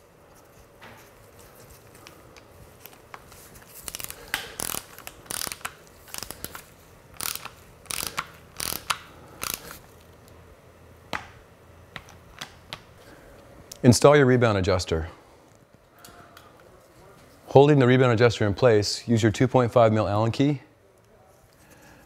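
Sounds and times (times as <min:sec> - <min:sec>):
torque wrench ratchet clicks: 0:03.9 - 0:06.3, 0:07.2 - 0:09.8.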